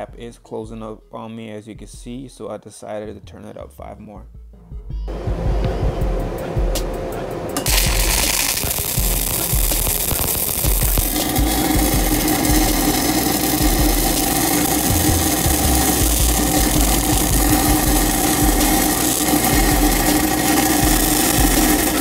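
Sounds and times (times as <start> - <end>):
welding arc crackling hiss: 7.6 - 22.0.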